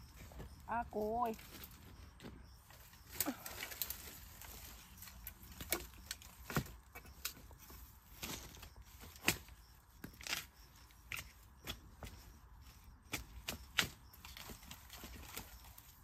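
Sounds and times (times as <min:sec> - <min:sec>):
bamboo stems snapping and rustling: 0:02.7 - 0:10.5, 0:13.1 - 0:16.0.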